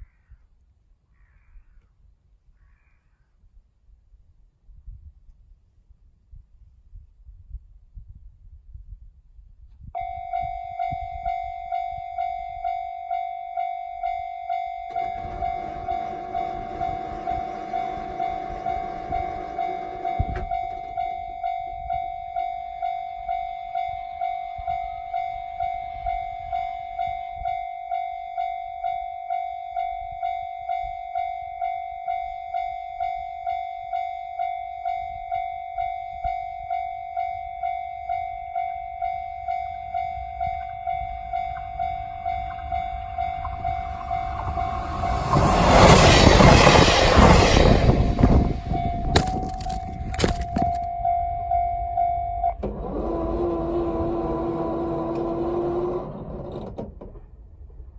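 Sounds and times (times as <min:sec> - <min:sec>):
level crossing alarm dinging: 0:10.0 - 0:52.6
diesel train passing: 0:14.4 - 0:22.4, 0:38.3 - 0:50.4
wheels clacking over rail joints: 0:14.7 - 0:21.2, 0:39.6 - 0:50.8.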